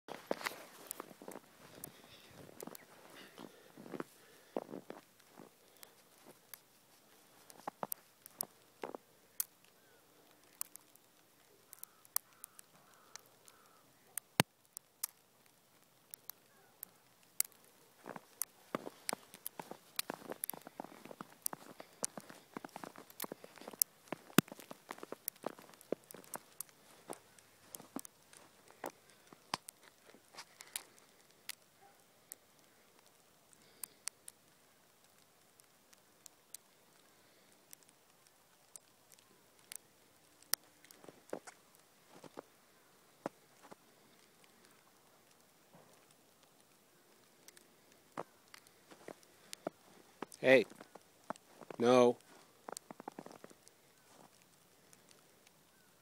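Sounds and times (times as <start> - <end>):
footsteps on snow: 0.1 - 9.0, 18.0 - 30.7, 40.9 - 42.5, 43.2 - 43.8, 48.2 - 54.4.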